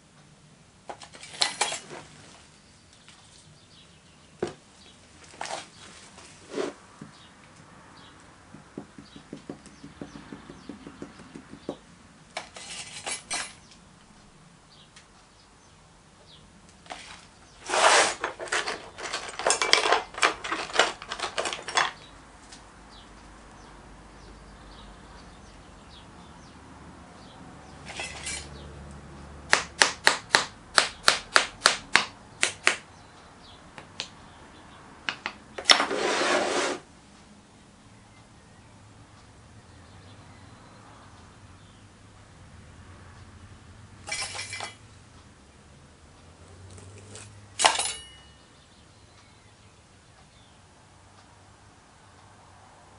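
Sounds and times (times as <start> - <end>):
metal tool scraping sand: 6.5 - 6.8, 12.4 - 13.6, 16.9 - 19.9, 27.9 - 28.5, 35.6 - 36.8
sharp taps: 8.5 - 11.8
tool tapping on wooden box: 8.5 - 11.8.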